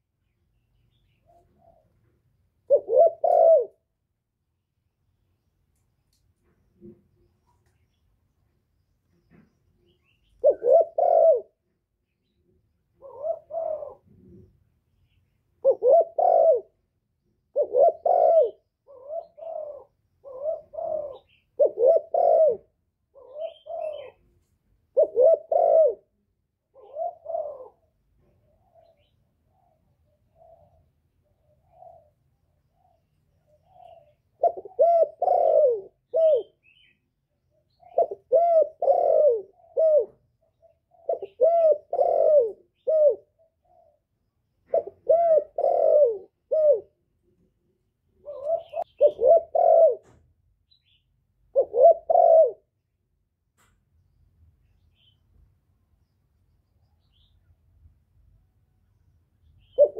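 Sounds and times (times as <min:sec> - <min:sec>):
dove cooing: 0:01.2 - 0:03.9, 0:09.3 - 0:11.6, 0:12.9 - 0:14.5, 0:15.6 - 0:47.0, 0:48.1 - 0:50.2, 0:50.8 - 0:52.8, 0:59.6 - 0:59.9.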